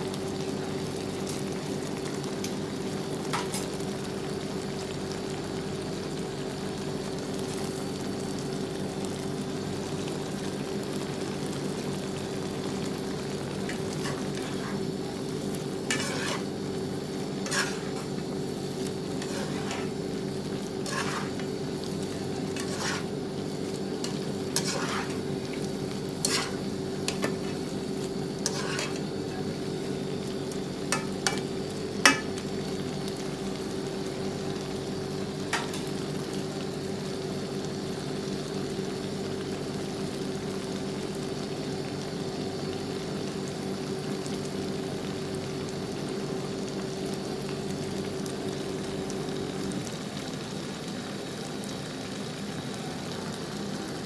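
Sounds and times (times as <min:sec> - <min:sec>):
food sizzling in a pan: 0:00.0 - 0:54.0
spatula knocking and scraping pan: 0:15.9 - 0:16.4, 0:17.5 - 0:18.1, 0:20.9 - 0:21.4, 0:22.6 - 0:23.1, 0:24.6 - 0:25.2, 0:26.3 - 0:27.5, 0:28.5 - 0:29.0.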